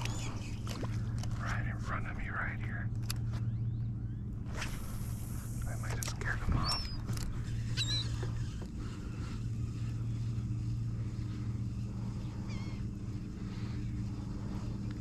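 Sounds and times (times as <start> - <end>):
bird calling: 0.0 - 1.1, 6.2 - 9.4, 10.8 - 14.6
boat motor humming: 0.0 - 15.0.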